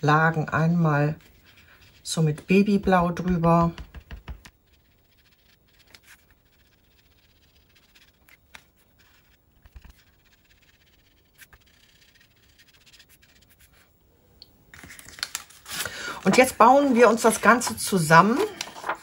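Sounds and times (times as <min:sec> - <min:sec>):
foam dauber rubbing on card: 0:01.2 - 0:13.9.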